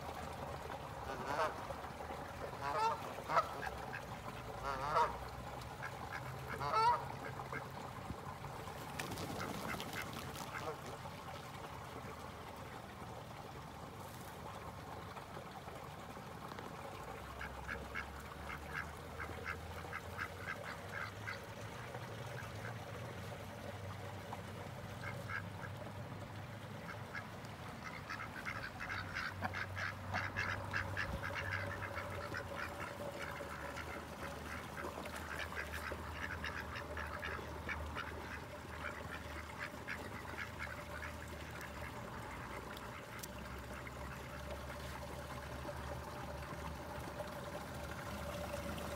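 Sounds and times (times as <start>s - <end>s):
ducks quacking: 2.6s - 5.2s, 5.8s - 7.6s, 27.8s - 43.8s.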